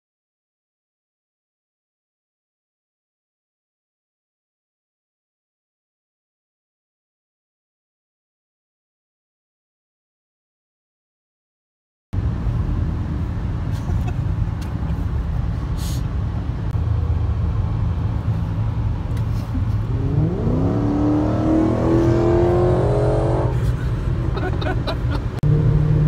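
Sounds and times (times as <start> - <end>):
car engine accelerating hard: 12.2 - 26.0
road and wind rumble in car: 12.2 - 26.0.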